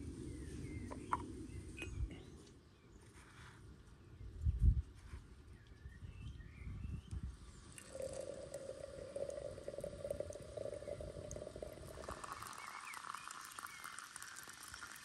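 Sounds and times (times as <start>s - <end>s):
hot water pouring into teapot: 7.6s - 15.0s.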